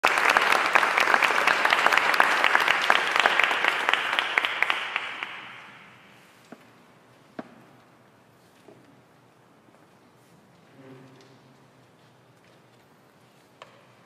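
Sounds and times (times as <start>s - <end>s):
audience applauding: 0.0s - 6.0s.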